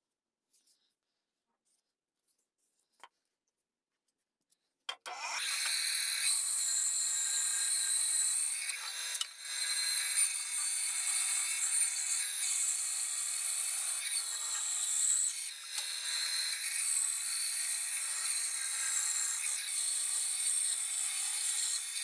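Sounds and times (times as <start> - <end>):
band saw cutting wood: 5.1 - 22.0.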